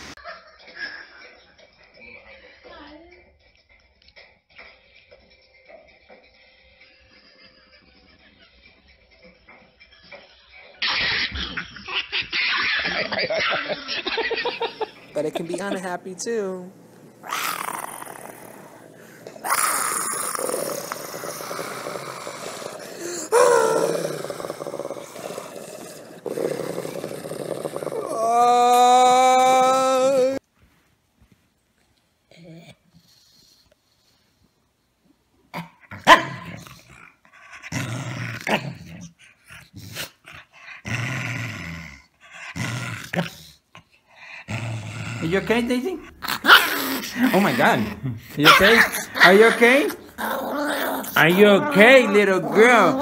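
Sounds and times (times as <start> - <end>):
dog growling and snarling: 17.1 - 28.6, 35.5 - 53.0
dog crying: 17.2 - 25.2, 46.2 - 53.0.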